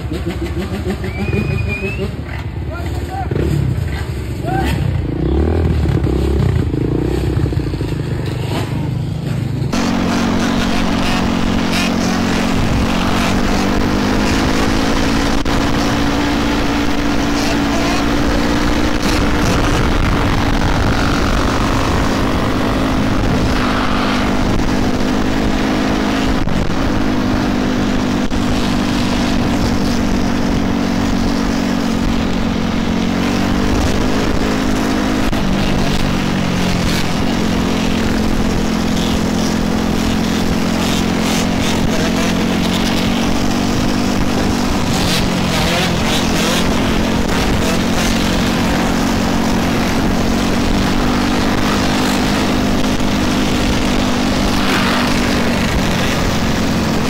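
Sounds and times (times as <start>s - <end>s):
dirt bike engines droning: 0.0s - 57.0s
road and wind noise: 0.0s - 57.0s.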